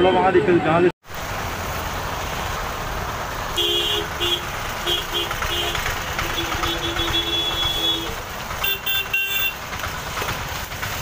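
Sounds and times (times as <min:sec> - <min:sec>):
traffic engines: 0:00.0 - 0:11.0
heavy rain: 0:01.0 - 0:11.0
vehicle horns honking: 0:03.5 - 0:09.6.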